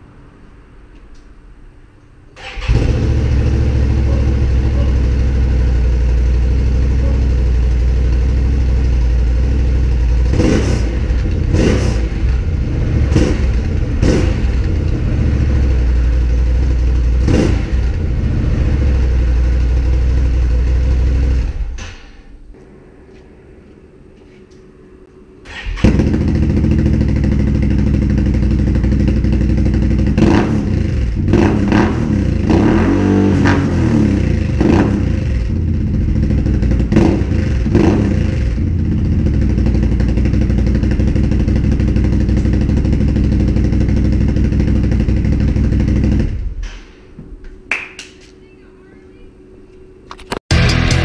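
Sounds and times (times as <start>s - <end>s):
engine idling and revving: 2.4s - 21.8s, 25.5s - 46.6s.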